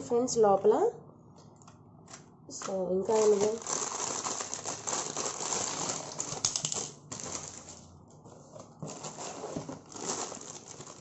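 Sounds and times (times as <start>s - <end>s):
plastic bag crinkling: 2.6s - 11.0s.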